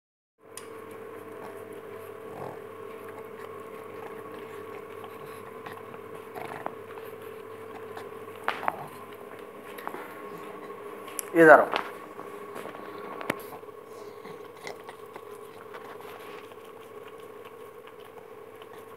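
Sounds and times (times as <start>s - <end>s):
steady hum: 0.4s - 18.9s
dog licking and biting ice lolly: 12.6s - 18.9s.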